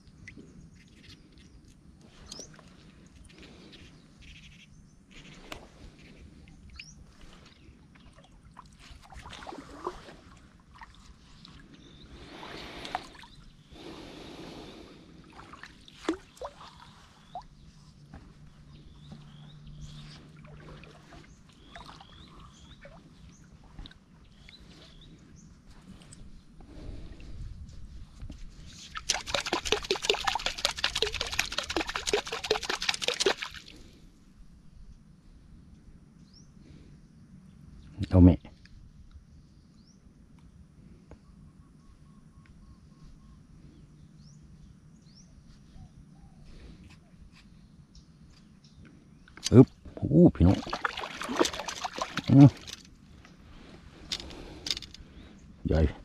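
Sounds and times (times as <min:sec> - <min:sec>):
paddle swishing through water: 0:07.1 - 0:11.6, 0:19.9 - 0:24.0, 0:50.5 - 0:52.8
fish splashing in water: 0:28.9 - 0:33.8, 0:50.5 - 0:52.8.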